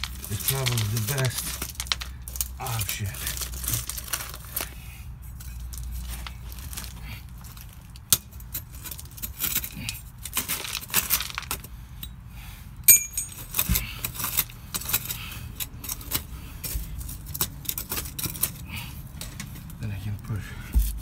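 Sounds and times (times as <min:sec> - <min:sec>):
metal tool scraping and clicking: 0:08.0 - 0:10.6, 0:12.8 - 0:19.8
ringing metallic clink: 0:12.9 - 0:13.6.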